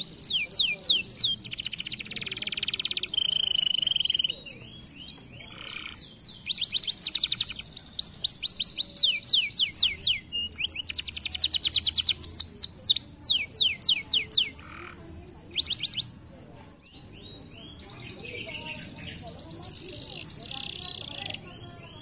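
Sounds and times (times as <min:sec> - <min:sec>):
canary singing trills: 0:00.0 - 0:22.0.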